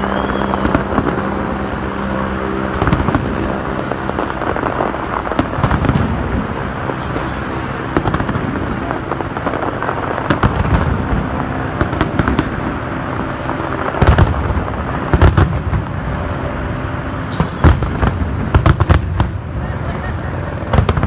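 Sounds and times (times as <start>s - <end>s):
fireworks rumble and crackle: 0.0s - 21.0s
loud firework bangs: 0.0s - 21.0s.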